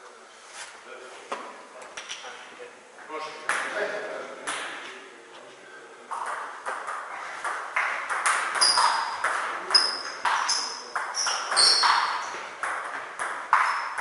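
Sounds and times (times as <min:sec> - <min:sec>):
ping pong ball clicking: 0:06.1 - 0:09.4, 0:10.2 - 0:14.0
shoes squeaking on floor: 0:08.6 - 0:12.5, 0:13.5 - 0:14.0.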